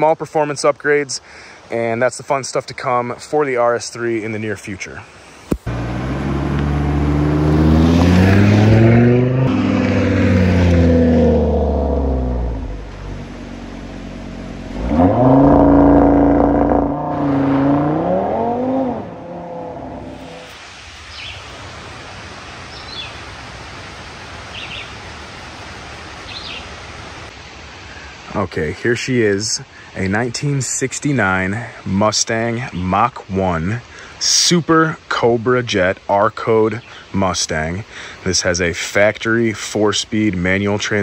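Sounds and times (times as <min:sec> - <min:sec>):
car engine revving: 0:05.7 - 0:20.5.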